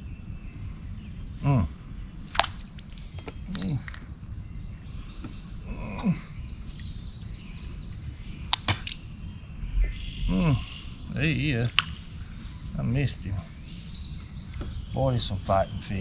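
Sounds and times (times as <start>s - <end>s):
insects droning: 0.0s - 16.0s
short vocal grunt: 1.4s - 1.8s
sharp clicks: 8.5s - 9.0s.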